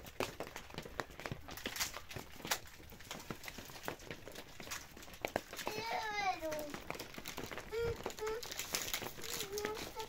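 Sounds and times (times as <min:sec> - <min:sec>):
light clicks and ticks: 0:00.2 - 0:10.0.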